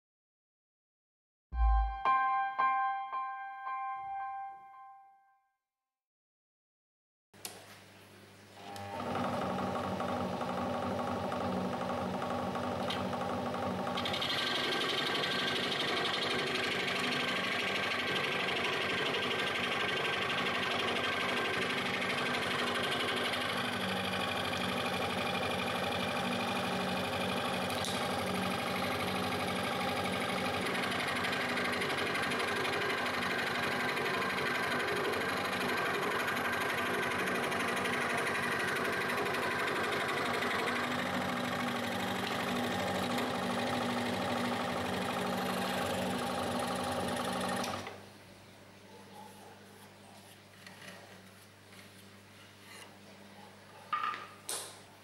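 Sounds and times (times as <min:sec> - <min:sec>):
scroll saw cutting plywood: 0:08.7 - 0:48.0.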